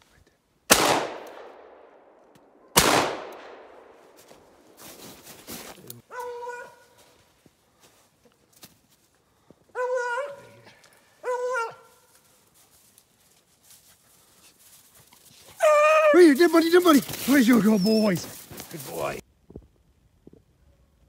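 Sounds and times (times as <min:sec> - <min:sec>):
hound baying: 0:06.1 - 0:07.0, 0:09.7 - 0:12.1, 0:15.3 - 0:18.9.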